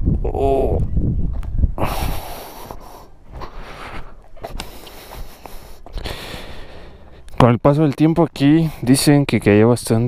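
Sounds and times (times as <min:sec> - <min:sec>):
footsteps on sandy earth: 0:01.2 - 0:07.3.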